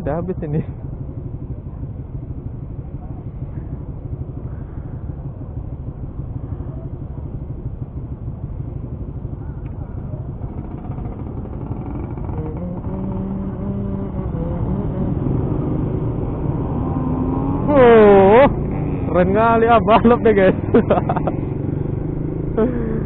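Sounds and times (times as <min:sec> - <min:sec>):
motorcycle engines idling: 0:00.0 - 0:23.0
motorcycle engine revving: 0:00.1 - 0:23.0.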